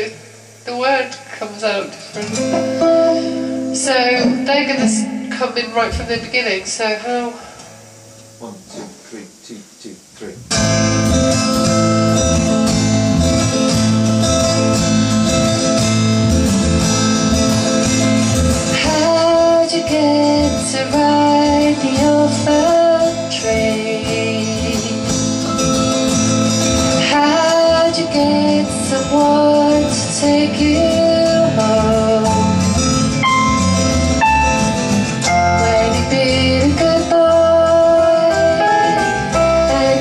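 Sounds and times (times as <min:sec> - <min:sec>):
strummed acoustic guitar: 0:02.0 - 0:06.7, 0:10.5 - 0:40.0
woman singing: 0:02.8 - 0:07.4, 0:18.7 - 0:25.4, 0:27.0 - 0:32.7, 0:35.2 - 0:40.0.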